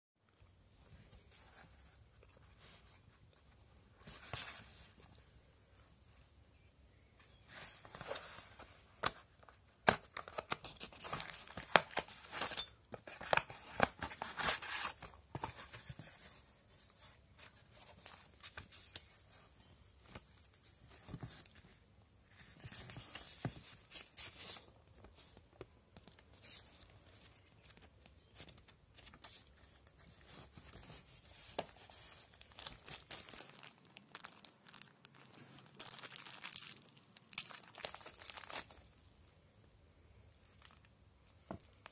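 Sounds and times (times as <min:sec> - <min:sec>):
cardboard and paper rustling: 0:00.9 - 0:05.2, 0:07.2 - 0:36.6
plastic bag crinkling: 0:32.3 - 0:39.1.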